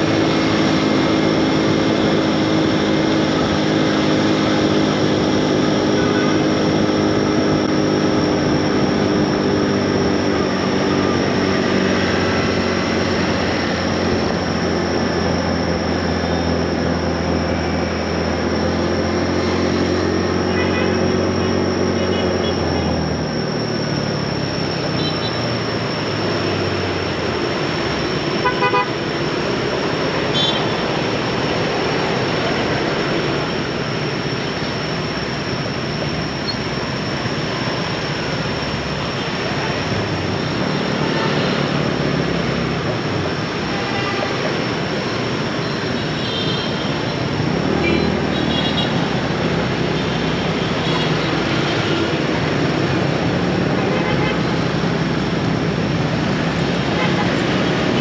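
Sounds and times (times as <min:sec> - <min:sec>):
motorbike engines in traffic: 0:00.0 - 0:58.0
horn toots: 0:28.4 - 0:29.0.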